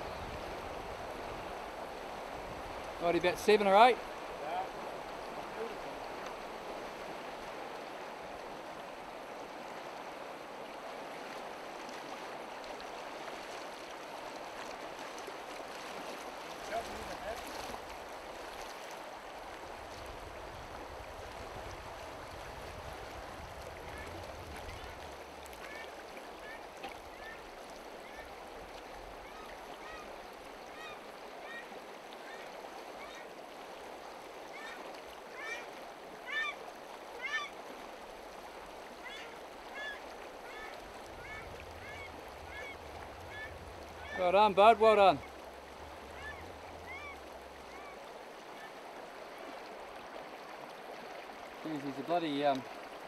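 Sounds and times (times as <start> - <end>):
river running over stones: 0.0 - 53.0
bird short high calls: 46.2 - 48.0.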